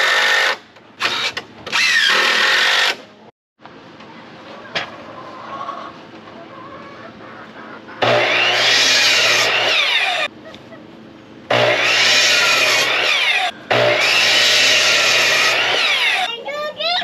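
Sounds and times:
electric saw cutting wood: 0.0s - 3.0s, 8.0s - 10.3s, 11.5s - 16.3s.

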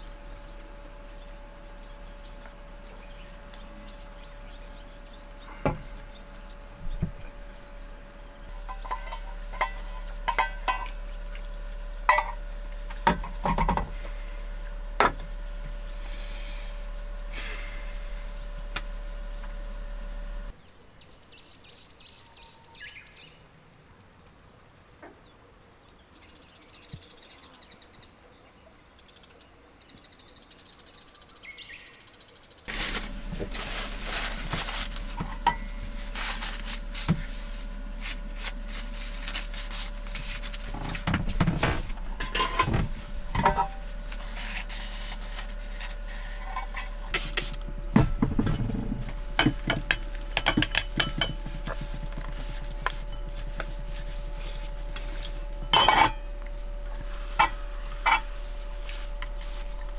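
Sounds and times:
steady low hum: 0.0s - 31.3s, 32.4s - 59.9s
metal pot and spoon clinking: 55.7s - 56.2s.

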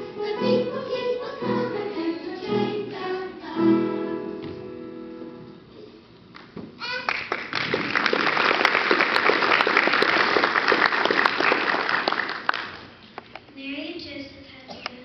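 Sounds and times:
audience applauding: 6.8s - 12.9s.

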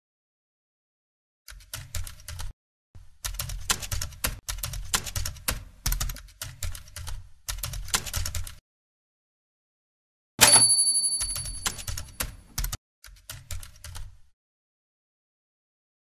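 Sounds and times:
typewriter keys striking: 3.3s - 8.6s, 10.4s - 14.1s.

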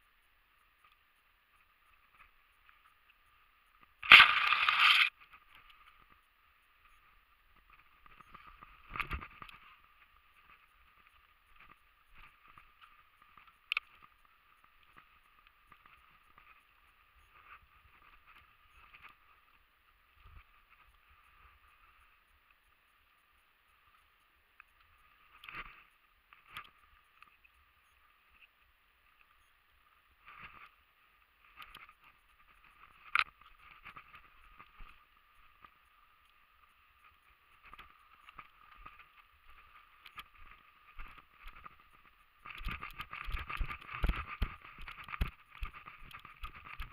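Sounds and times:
steady low hiss: 0.0s - 46.9s
footsteps through undergrowth: 4.0s - 5.1s.

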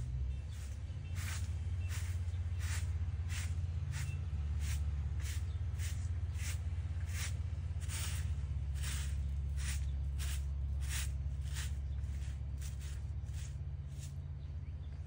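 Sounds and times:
low rumble: 0.0s - 15.0s
broom sweeping: 0.6s - 14.2s.

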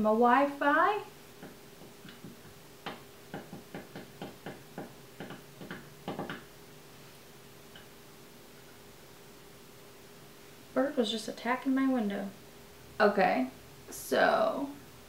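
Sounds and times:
bird tapping on glass: 1.4s - 6.5s.

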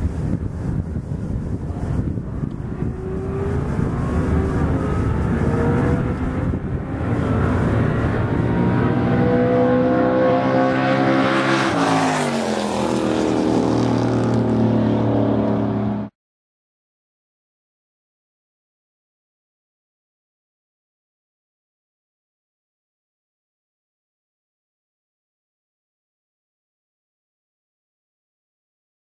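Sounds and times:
drag racing cars accelerating: 1.5s - 16.1s.

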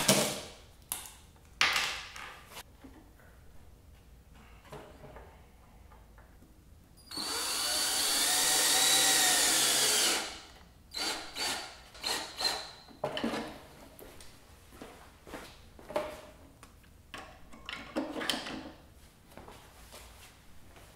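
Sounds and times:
cordless drill driving screws: 7.1s - 12.8s.

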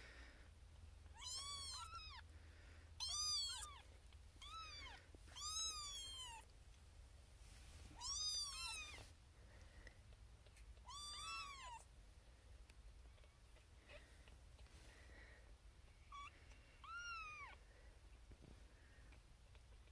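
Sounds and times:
kitten meowing: 1.1s - 2.2s, 3.0s - 6.5s, 8.0s - 9.0s, 10.8s - 11.9s, 16.1s - 17.6s.

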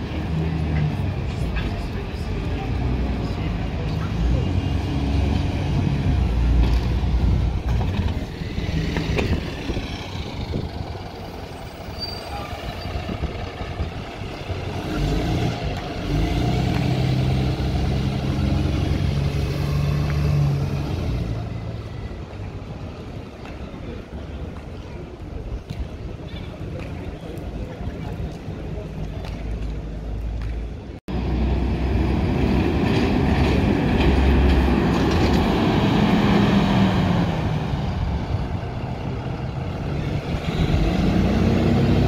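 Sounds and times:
bus diesel engine passing: 0.0s - 25.2s, 28.7s - 42.0s.

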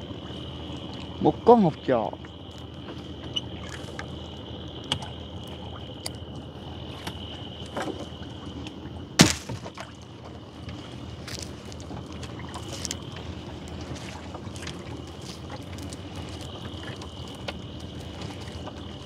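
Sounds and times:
net hauled into boat: 8.8s - 19.0s
knocks against wooden hull: 9.2s - 9.9s.

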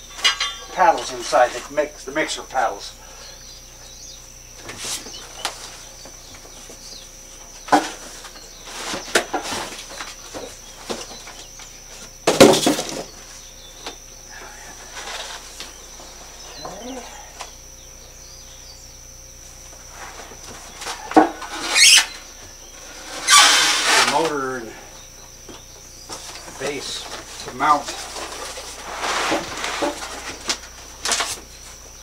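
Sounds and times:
cardboard rustling and scraping: 26.0s - 31.8s.

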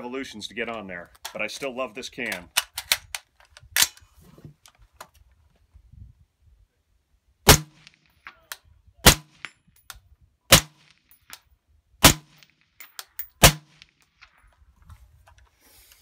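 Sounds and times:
suppressed rifle shots: 7.5s - 8.0s, 10.5s - 10.9s, 12.0s - 12.5s, 13.4s - 13.9s.

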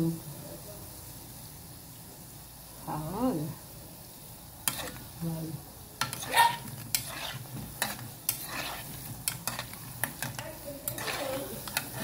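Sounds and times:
hot oil sizzling: 0.0s - 12.0s
metal spoon clinking against pot: 6.0s - 12.0s.

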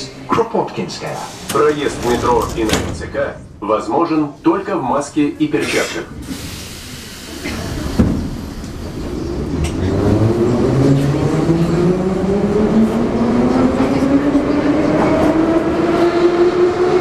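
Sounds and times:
train car rumble: 0.3s - 17.0s
train clunk: 1.0s - 3.4s, 7.4s - 9.9s.

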